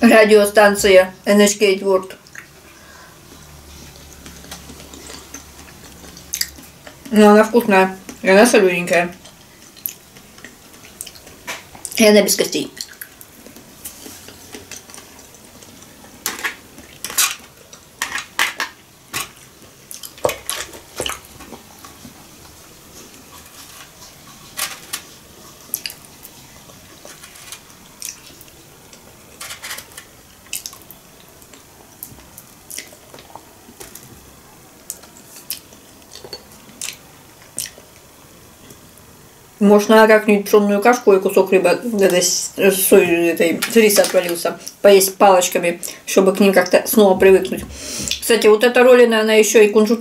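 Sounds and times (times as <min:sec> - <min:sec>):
chewing: 0:03.3 - 0:07.1, 0:09.2 - 0:12.0, 0:19.4 - 0:29.2, 0:29.8 - 0:34.1, 0:34.8 - 0:38.0.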